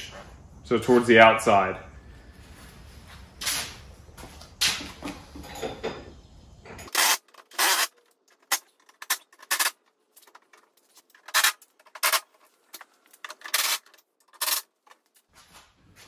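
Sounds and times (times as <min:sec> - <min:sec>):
scuffing rustling noises: 0:02.2 - 0:05.2, 0:15.1 - 0:16.0.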